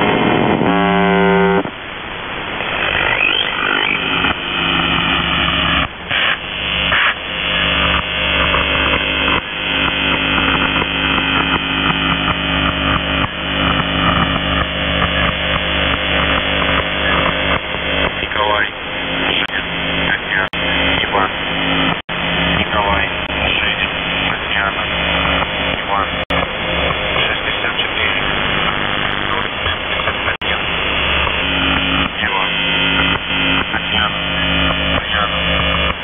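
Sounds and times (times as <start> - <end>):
short signal bursts: 0.0 - 1.8, 2.9 - 18.1
harsh radio buzz tone: 0.0 - 36.0
low hums: 0.0 - 36.0
radio static and interference: 0.0 - 36.0.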